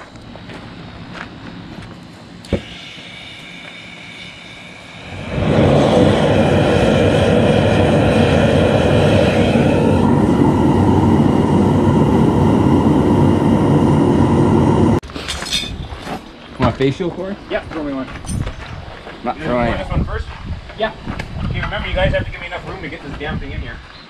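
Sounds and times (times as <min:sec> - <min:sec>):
furnace burner roaring: 0:00.0 - 0:15.1.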